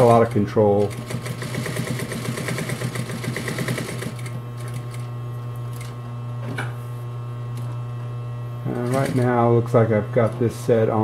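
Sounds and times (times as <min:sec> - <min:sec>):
sewing machine stitching: 0:00.0 - 0:05.1, 0:08.7 - 0:09.4
motor humming: 0:00.0 - 0:11.0.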